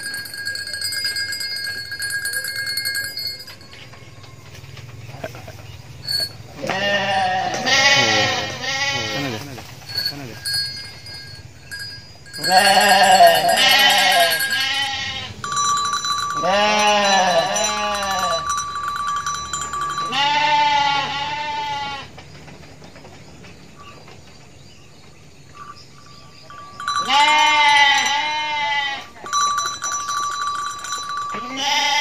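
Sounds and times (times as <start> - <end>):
sheep bleating: 6.2 - 10.6, 12.4 - 15.4, 16.3 - 18.5, 20.0 - 22.1, 27.0 - 29.1, 31.3 - 32.0.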